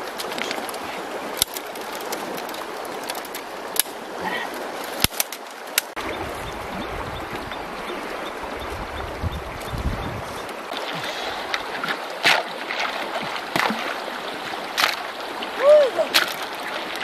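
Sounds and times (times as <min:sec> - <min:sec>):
river water rushing: 0:00.0 - 0:17.0
bamboo strips clicking: 0:01.4 - 0:04.0, 0:04.9 - 0:06.0.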